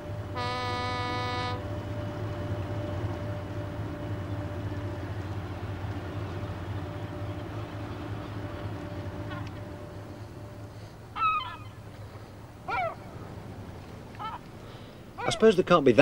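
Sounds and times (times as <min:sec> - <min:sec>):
ship horn blast: 0:00.0 - 0:11.1
faint constant hum: 0:00.0 - 0:16.0
ferry diesel engines droning: 0:00.0 - 0:16.0.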